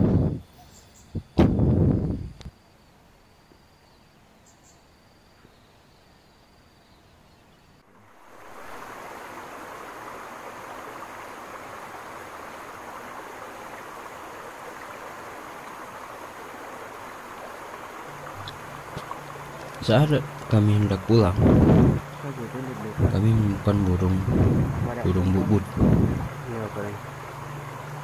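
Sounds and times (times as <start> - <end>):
steady rushing noise: 8.0 - 28.0.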